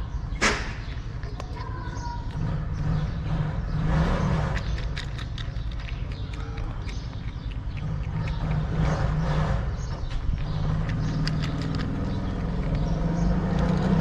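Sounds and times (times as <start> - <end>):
low traffic rumble: 0.0 - 14.0
cat crunching dry kibble: 4.4 - 9.2, 10.0 - 14.0.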